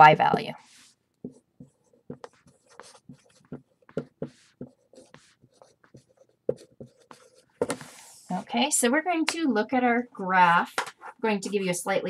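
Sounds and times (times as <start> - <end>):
marker writing on whiteboard: 0.0 - 8.4, 10.4 - 11.8.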